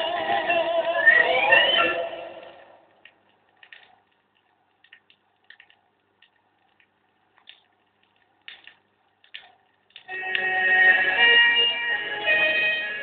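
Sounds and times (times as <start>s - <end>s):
vinyl surface hiss: 0.0s - 13.0s
vinyl clicks and pops: 2.4s - 10.8s
song playing: 10.1s - 13.0s.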